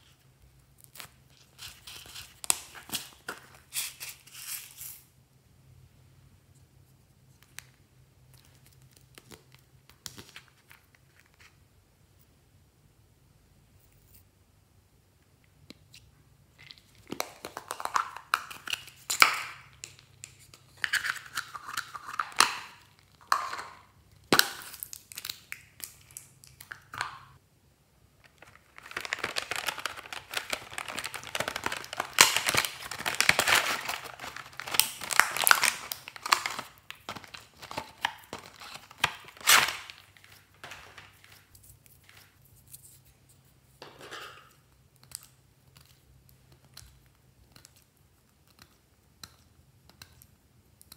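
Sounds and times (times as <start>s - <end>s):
plastic crinkling and tearing: 28.2s - 43.0s.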